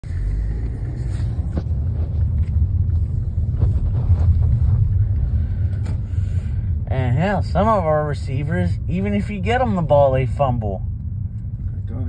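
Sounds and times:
car cabin rumble: 0.0 - 12.0.

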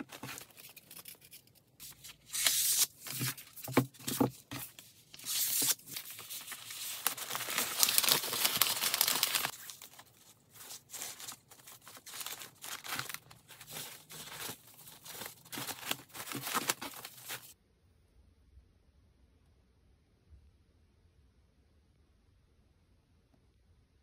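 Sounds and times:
wrapping paper rustling and crinkling: 0.0 - 17.6
light paper rustles while tying ribbon: 3.0 - 17.6.

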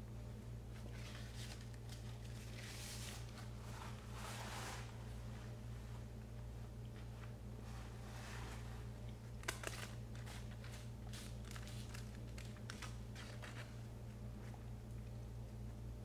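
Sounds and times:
paper wrapper crinkling: 0.8 - 3.4, 9.2 - 13.8.

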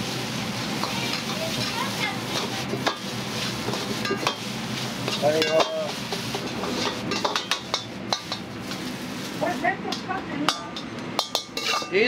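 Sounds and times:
frying sizzle: 0.0 - 12.0
metal ladle scraping a wok: 0.8 - 9.4.

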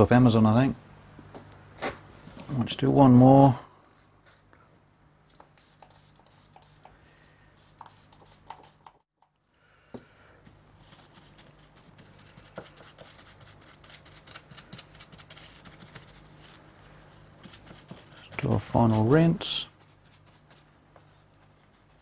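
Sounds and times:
low electrical hum: 0.0 - 22.0
brush scrubbing on board: 5.6 - 6.9, 7.6 - 8.9, 17.4 - 22.0.

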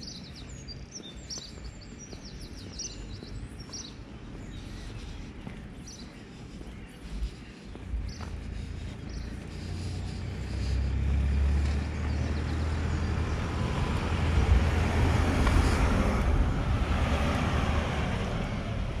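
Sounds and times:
vehicle driving past: 8.2 - 19.0.

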